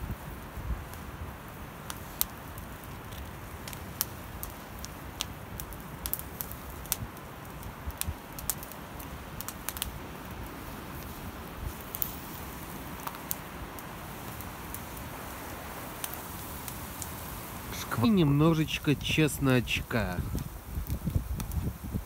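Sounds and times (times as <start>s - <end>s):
wood fire crackling: 0.0s - 22.0s.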